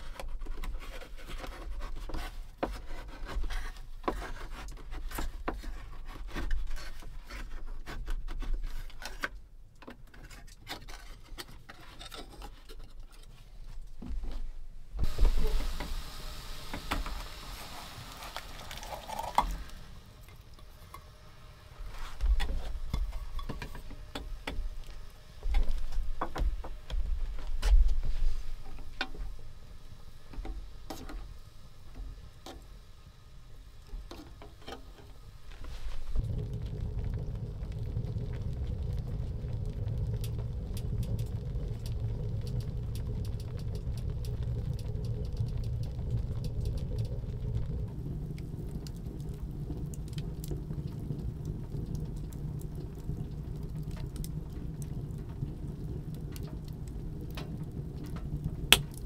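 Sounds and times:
can hissing on stove: 15.0 - 59.0.

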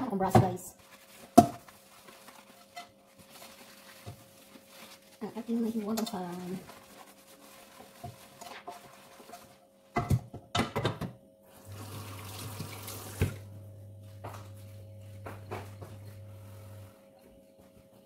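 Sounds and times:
tap water running: 11.6 - 13.5.

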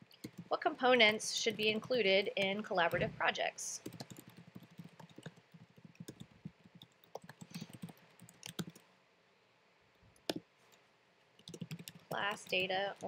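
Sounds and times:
typing on a computer keyboard: 0.1 - 0.5, 3.8 - 8.9, 11.4 - 13.0.

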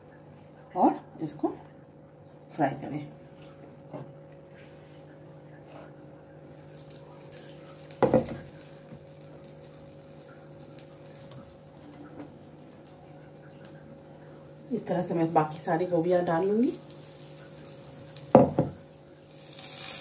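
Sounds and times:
batter sizzling in hot oil: 6.5 - 20.0.

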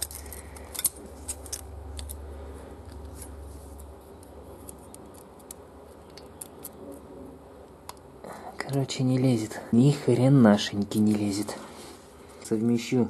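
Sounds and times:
metal blade clicking and scraping: 0.0 - 2.2.

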